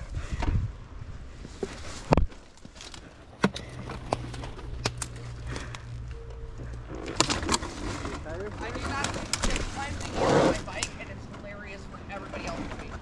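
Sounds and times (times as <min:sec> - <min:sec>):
electric bike low hum: 0:03.6 - 0:09.0.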